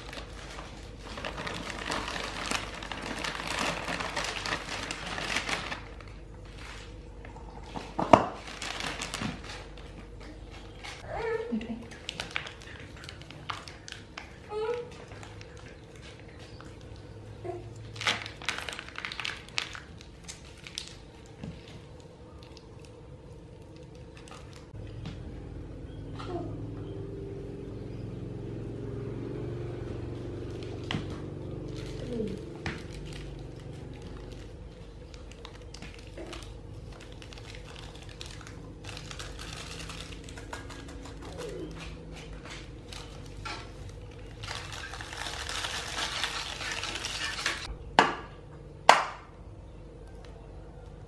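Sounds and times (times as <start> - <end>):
plastic pouch crinkling: 0.0 - 7.0, 8.3 - 11.1, 11.9 - 14.5, 17.9 - 23.0, 31.6 - 47.7
faint steady hum: 0.0 - 51.0.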